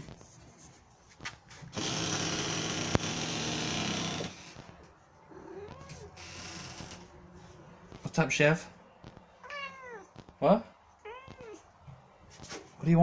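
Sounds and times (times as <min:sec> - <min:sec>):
cat meow: 0:05.3 - 0:06.3, 0:09.4 - 0:10.2, 0:11.0 - 0:11.6.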